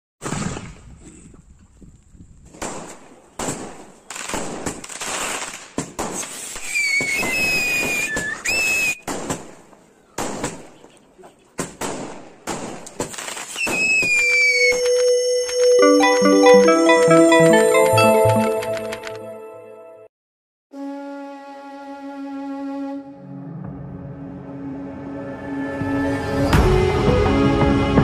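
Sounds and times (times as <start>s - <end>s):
firework crackling: 4.1s - 8.9s, 13.0s - 14.7s
high whistling tone: 13.6s - 17.4s.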